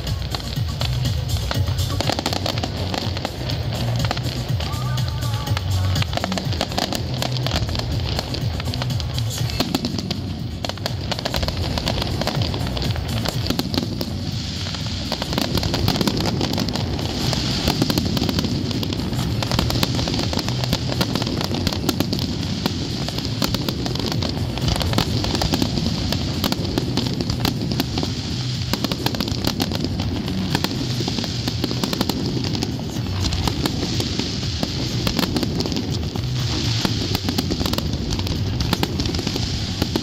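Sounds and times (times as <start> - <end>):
fireworks cracking and popping: 0.0 - 40.0
low rumble: 0.0 - 40.0
music playing: 0.0 - 40.0.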